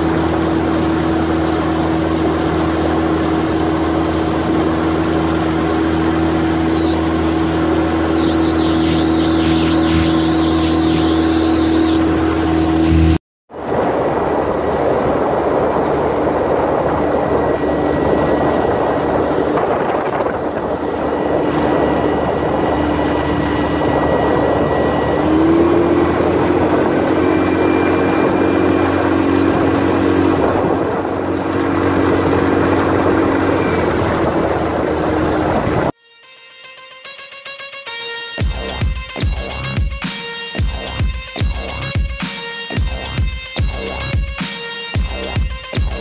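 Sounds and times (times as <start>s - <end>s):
rush of wind and water: 0.0s - 35.9s
outboard motor humming: 0.0s - 36.0s, 40.6s - 44.3s.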